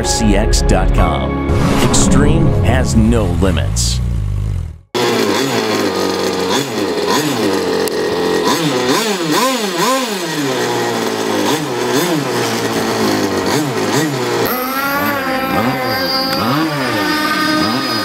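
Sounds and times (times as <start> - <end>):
two-stroke engine idling and revving: 4.0 - 18.0.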